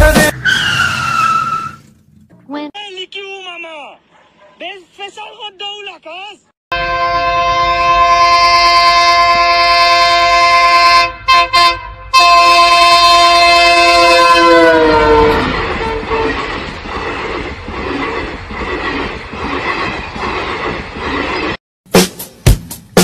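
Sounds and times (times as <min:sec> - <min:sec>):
train horn chord: 0:06.7 - 0:16.4
train wheels clickety-clack: 0:15.4 - 0:21.5.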